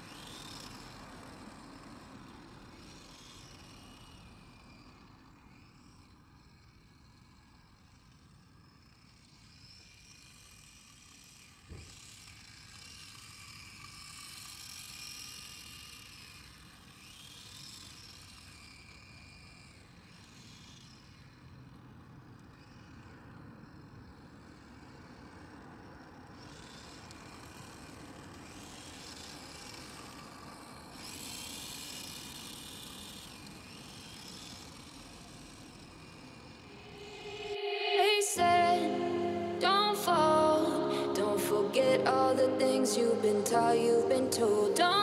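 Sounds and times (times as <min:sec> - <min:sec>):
electric toy car motor whine: 0:00.0 - 0:40.4.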